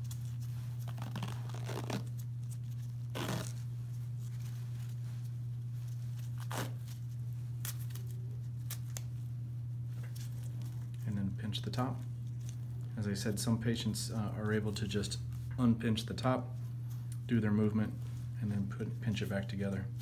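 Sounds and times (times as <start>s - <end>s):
elastic bandage crackling peels: 0.0s - 9.3s
steady low hum: 0.0s - 20.0s.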